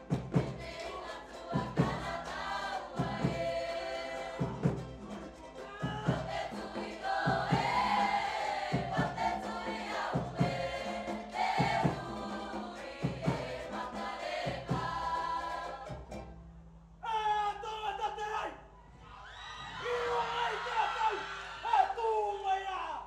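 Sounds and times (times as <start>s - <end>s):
group of voices singing: 0.0s - 16.3s.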